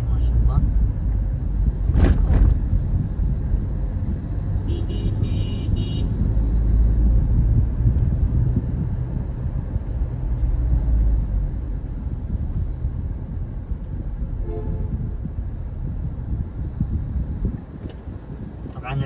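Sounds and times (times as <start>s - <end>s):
car cabin engine and road noise: 0.0s - 19.0s.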